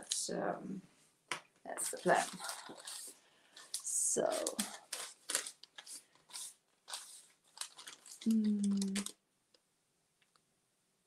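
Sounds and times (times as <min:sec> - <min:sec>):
paper tearing and crinkling: 0:01.9 - 0:09.1.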